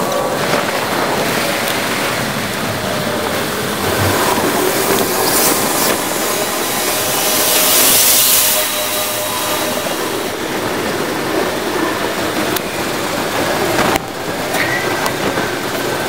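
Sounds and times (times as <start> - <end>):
bicycle rolling: 0.0 - 16.0
wind rushing: 1.0 - 13.4.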